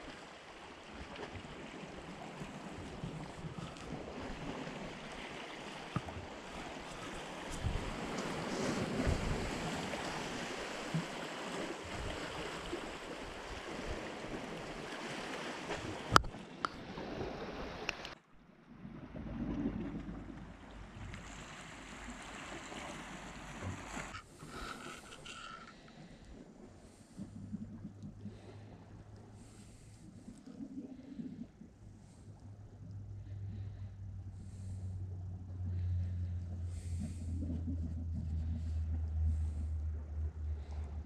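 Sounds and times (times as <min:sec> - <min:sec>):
sea waves washing on rocks: 0:00.0 - 0:18.2, 0:18.9 - 0:27.6.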